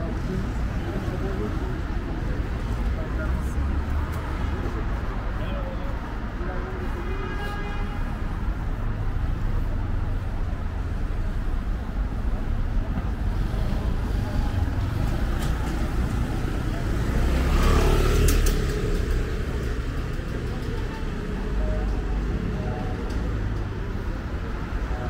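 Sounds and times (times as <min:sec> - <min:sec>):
low rumble of traffic: 0:00.0 - 0:25.0
vehicle passing close: 0:13.3 - 0:20.8.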